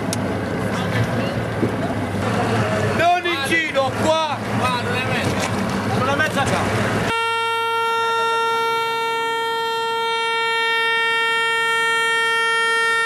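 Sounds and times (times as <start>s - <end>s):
air horn blast: 7.1s - 13.0s.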